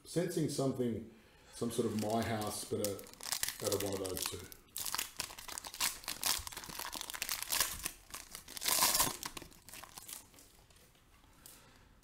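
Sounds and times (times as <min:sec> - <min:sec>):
foil wrapper crinkling: 0:01.8 - 0:10.7.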